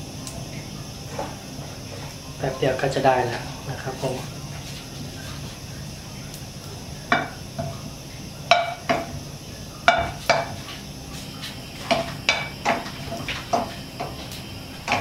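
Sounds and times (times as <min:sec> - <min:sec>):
faint sizzle of sausage frying: 0:00.0 - 0:15.0
wooden spatula knocking on wok: 0:08.5 - 0:09.1, 0:09.9 - 0:10.6, 0:11.9 - 0:12.9.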